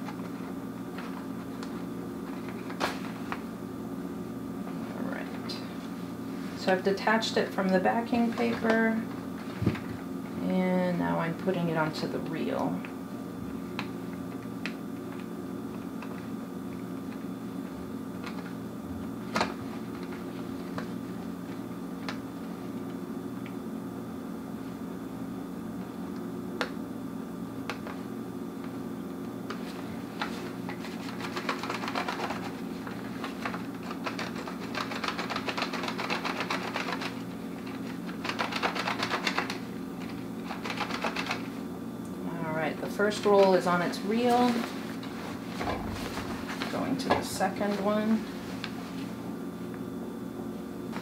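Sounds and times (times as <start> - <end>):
low hum: 45.5 - 48.4.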